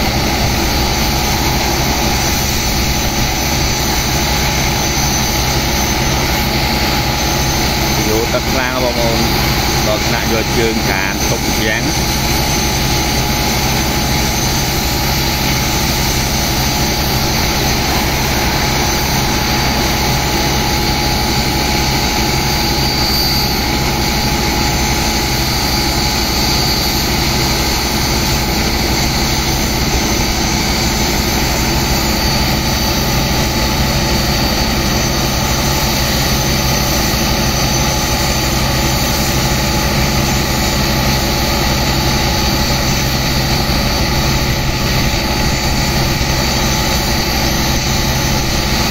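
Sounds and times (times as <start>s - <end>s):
high-pressure water jets hissing: 0.0s - 33.8s
pump engine droning: 0.0s - 48.9s.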